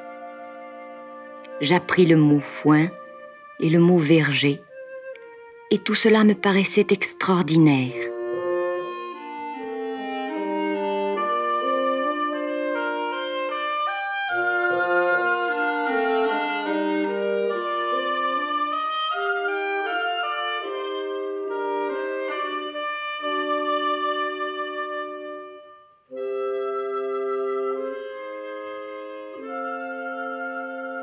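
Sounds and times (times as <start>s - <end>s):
orchestral music: 0.0s - 31.0s
sustained orchestral chord: 6.2s - 31.0s.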